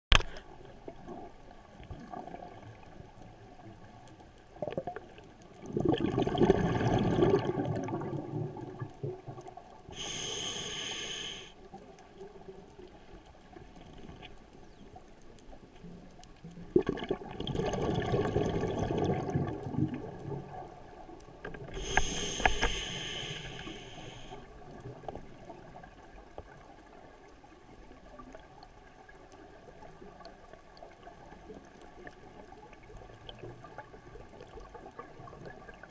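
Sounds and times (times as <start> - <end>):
bubbling exhalation underwater: 5.6 - 8.9, 16.7 - 20.2
hissing regulator inhalation: 10.0 - 11.6, 21.8 - 24.4.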